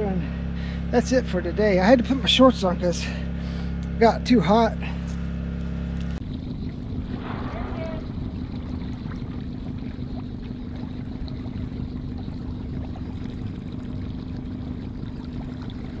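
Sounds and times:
boat motor droning: 0.0s - 16.0s
water rushing past hull: 6.2s - 16.0s.

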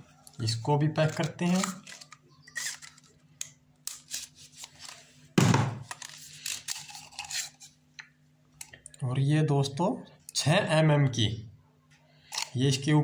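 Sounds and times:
loud thump: 5.4s - 5.8s.

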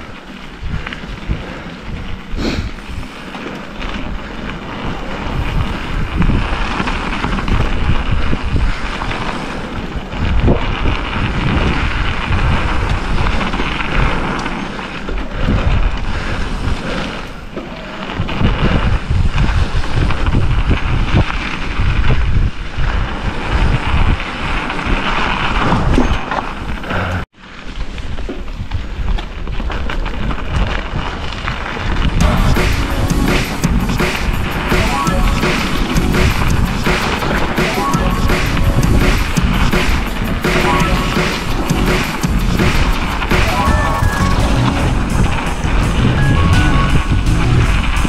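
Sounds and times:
wind buffeting microphone: 0.0s - 27.3s, 42.3s - 48.0s
tyres rumbling on gravel: 0.0s - 48.0s.

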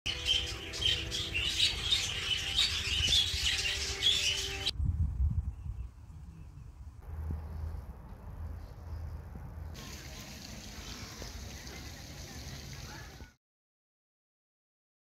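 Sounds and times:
budgerigars chirping: 0.1s - 4.7s.

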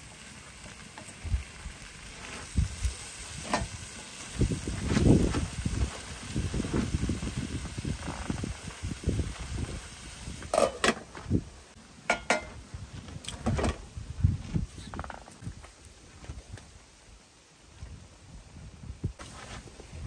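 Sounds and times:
glass lid clinking on pan: 10.5s - 11.0s, 12.1s - 12.5s.

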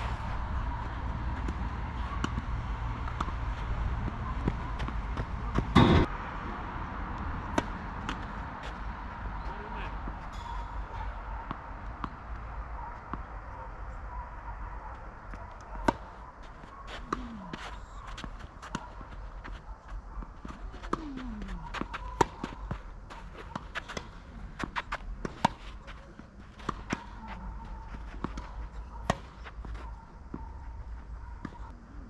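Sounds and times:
footsteps on tennis court: 0.8s - 6.0s, 15.3s - 31.7s
tennis ball bouncing: 0.8s - 6.1s, 7.5s - 8.8s, 15.3s - 16.2s, 16.9s - 19.6s, 20.4s - 27.4s.

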